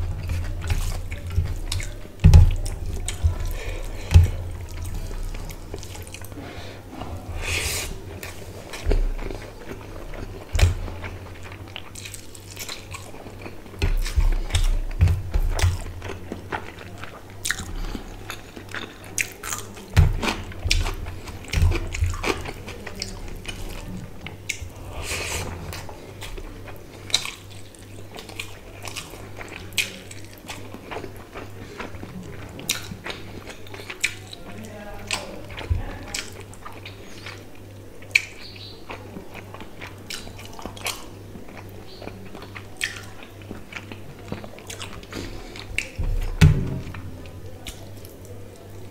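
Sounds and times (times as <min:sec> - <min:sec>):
chewing and lip-smacking: 0:00.0 - 0:07.3, 0:07.9 - 0:46.4, 0:47.2 - 0:48.9
fingers mixing food on steel plate: 0:00.0 - 0:37.4.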